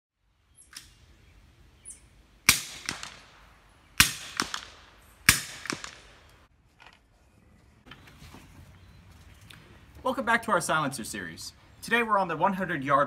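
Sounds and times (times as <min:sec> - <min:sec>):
faint sharp gun cracks: 0:02.5 - 0:03.4, 0:04.0 - 0:06.4
gunshots: 0:02.5 - 0:03.4, 0:04.0 - 0:06.3
gunshot echo: 0:02.5 - 0:06.3.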